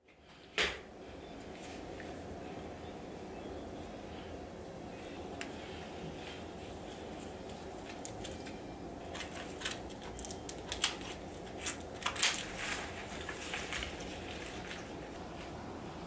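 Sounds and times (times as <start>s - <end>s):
faint room hum: 0.0s - 16.0s
bouquet wrapping crinkling: 6.9s - 15.2s.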